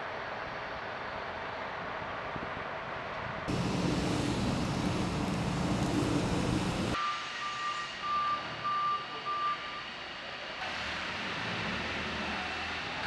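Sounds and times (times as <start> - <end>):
backup alarm beeping: 3.5 - 7.0
vehicle engine humming: 3.5 - 7.0.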